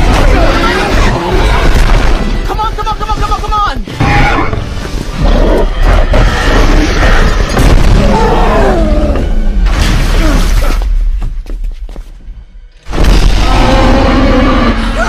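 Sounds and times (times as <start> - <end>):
dramatic soundtrack music: 0.0 - 15.0
heavy booms: 6.1 - 8.4.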